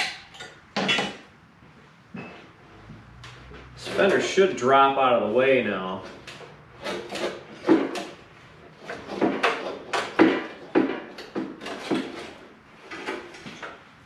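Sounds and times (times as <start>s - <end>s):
metal fender knocking and scraping: 6.0s - 13.7s.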